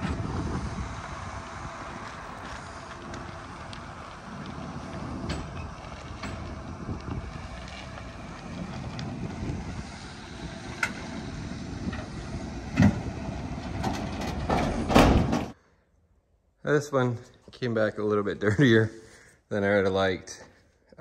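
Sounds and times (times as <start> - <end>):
wind rumbling on microphone: 0.0 - 15.5
loud thump: 14.4 - 15.5.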